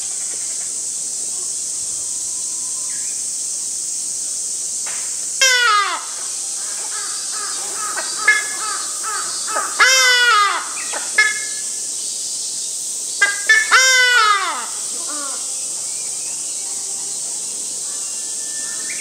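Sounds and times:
ibis calling harshly: 5.4 - 11.7, 13.2 - 15.6.

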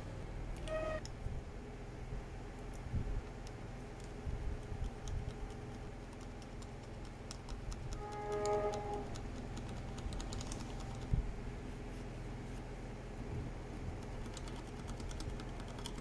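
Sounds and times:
steady low hum: 0.0 - 16.0
short pitched tone: 0.6 - 1.0, 8.0 - 9.1.

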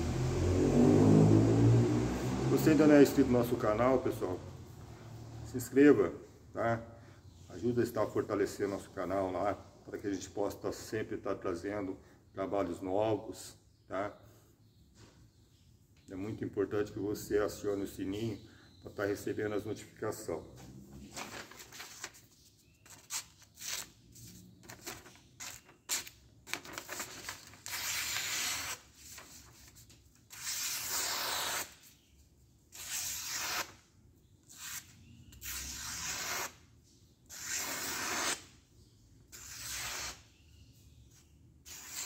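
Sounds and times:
paper crinkling: 21.0 - 30.0
knife blade slicing paper: 24.7 - 31.9, 32.7 - 33.8, 34.5 - 36.6, 37.3 - 38.4, 39.3 - 40.2, 41.6 - 42.0.

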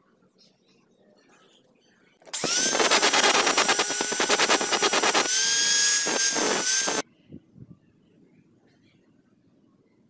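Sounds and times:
angle grinder whine: 2.3 - 7.0.

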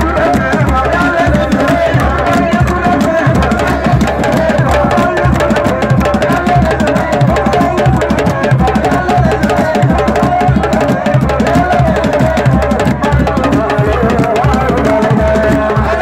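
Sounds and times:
djembe drums playing: 0.0 - 16.0.

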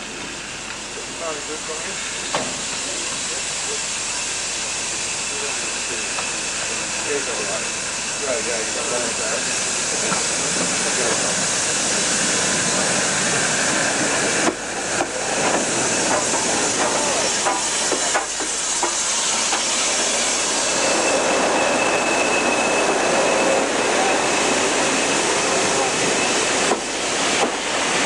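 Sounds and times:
train rolling past: 0.0 - 28.0
high-pitched brake squeal: 19.0 - 26.5.

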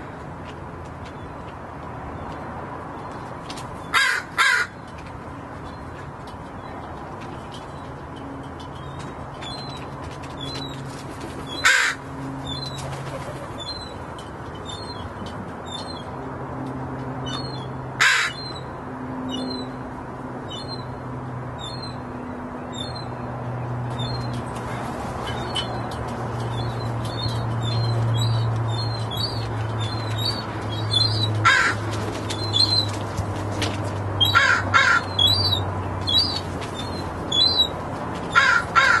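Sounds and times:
crows cawing: 3.9 - 4.8, 11.6 - 12.0, 18.0 - 18.4, 31.4 - 31.9, 34.2 - 35.2, 38.3 - 39.0.

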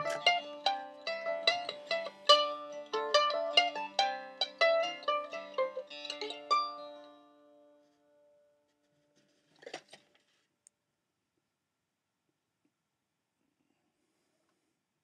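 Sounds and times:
low held accompaniment: 0.0 - 7.4
mandolin plucked notes: 0.0 - 8.5.

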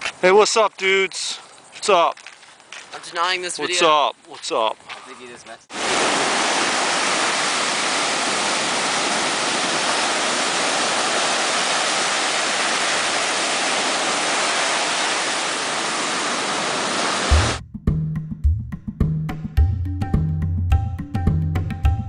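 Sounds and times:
ocean surf breaking: 5.7 - 17.6
music with low drum beat: 17.3 - 22.0.

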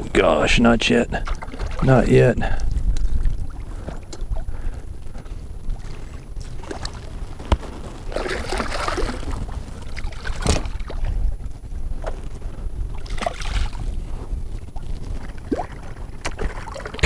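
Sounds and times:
water splashing and sloshing: 0.0 - 12.3, 12.9 - 17.0
low wind rumble on microphone: 0.0 - 17.0
fish thrashing: 1.2 - 5.2, 8.1 - 11.2.

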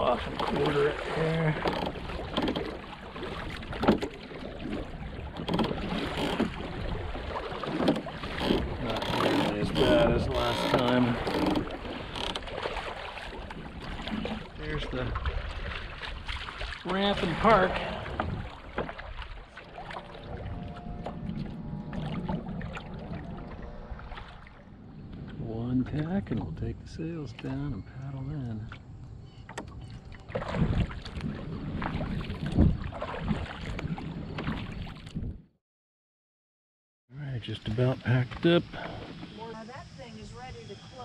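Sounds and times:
kayak hull slapping waves: 0.0 - 26.6, 28.7 - 35.4, 38.1 - 41.0
water and wind rumble: 0.0 - 35.6, 37.4 - 41.0
wind on microphone: 4.6 - 12.1, 17.6 - 18.7, 28.8 - 35.5.

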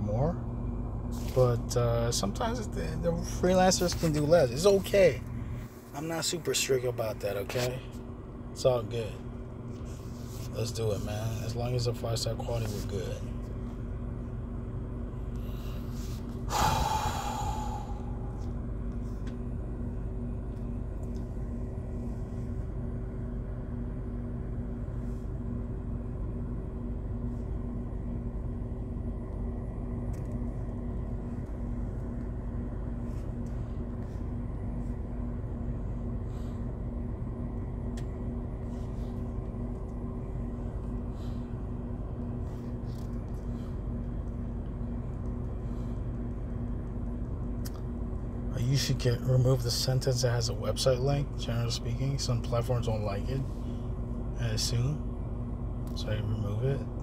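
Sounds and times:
loud breath: 15.4 - 18.5.

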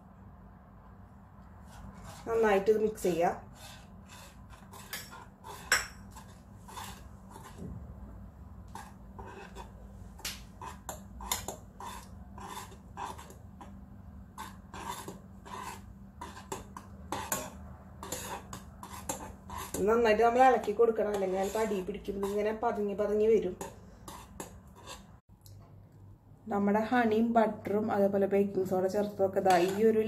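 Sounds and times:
spoon scraping and clinking in saucepan: 4.1 - 7.6, 14.4 - 22.5, 29.4 - 30.0.

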